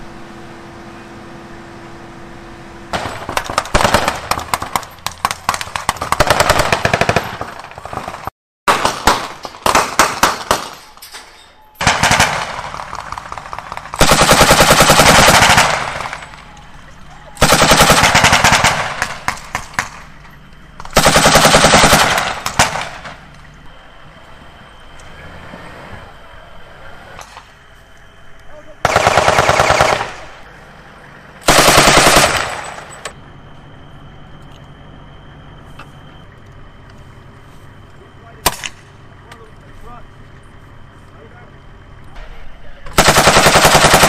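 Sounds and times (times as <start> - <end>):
machine gun automatic fire: 2.9 - 10.8, 11.8 - 16.4, 17.4 - 20.1, 20.8 - 23.2, 28.8 - 30.4, 31.4 - 33.1, 42.9 - 44.0
single gunshots: 2.9 - 10.8, 38.4 - 38.8.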